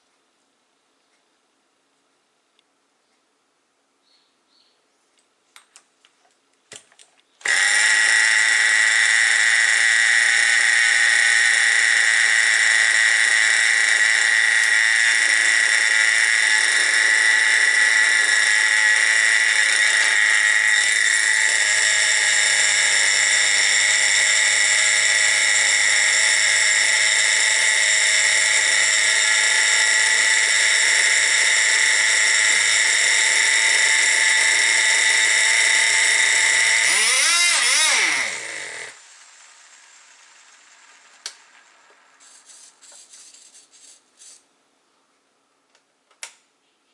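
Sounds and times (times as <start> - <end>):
small glow engine whining: 7.4 - 44.4.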